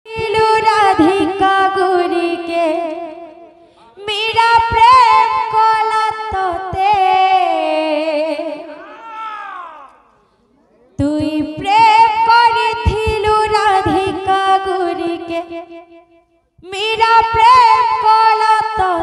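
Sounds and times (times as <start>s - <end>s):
woman singing into a microphone: 0.1s - 8.8s, 11.0s - 16.0s, 16.6s - 19.0s.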